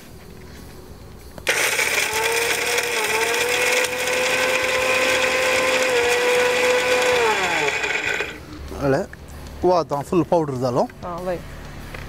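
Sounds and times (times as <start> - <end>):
mixer grinder whining: 1.4 - 8.4.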